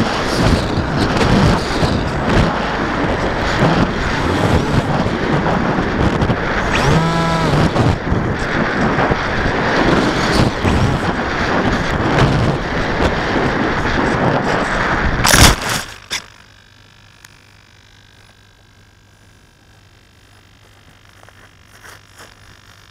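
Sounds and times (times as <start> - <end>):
wind rush: 0.0 - 15.8
faint low hum: 0.0 - 22.9
model aircraft motor and propeller: 0.0 - 22.9.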